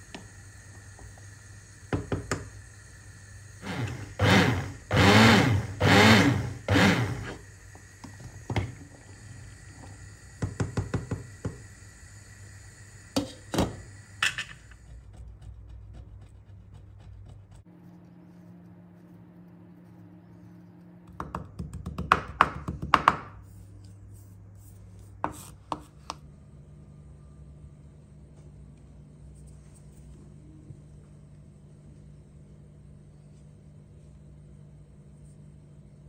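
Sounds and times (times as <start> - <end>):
hand blender whirring in soup: 0.0 - 15.5
steady low hum: 0.0 - 21.2, 22.8 - 36.0
wooden spoon knocking on pot: 10.4 - 11.6.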